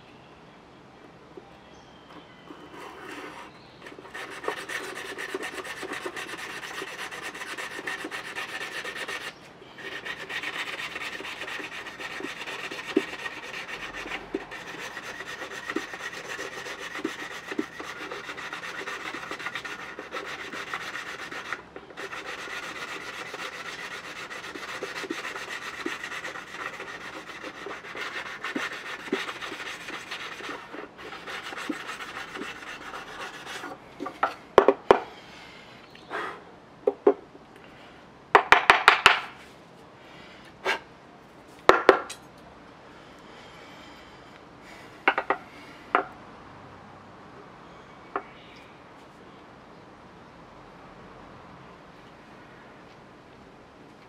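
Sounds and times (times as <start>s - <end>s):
rasping on bamboo rod: 2.2s - 34.4s.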